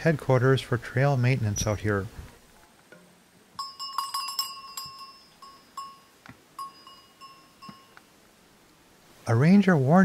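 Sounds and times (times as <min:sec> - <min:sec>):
small metal bell clanking: 0:03.6 - 0:08.0.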